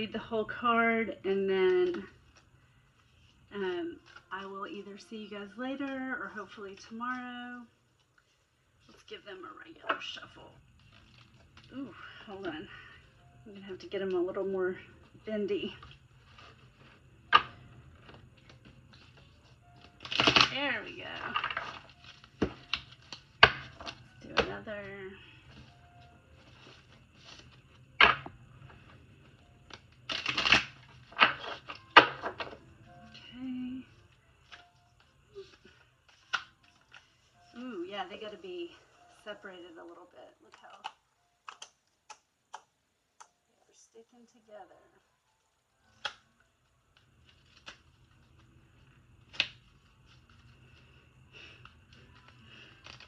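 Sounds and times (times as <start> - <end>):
stiff cards snapping: 29.7 - 32.4
cards being riffle-shuffled: 34.4 - 37.3, 46.9 - 53.0.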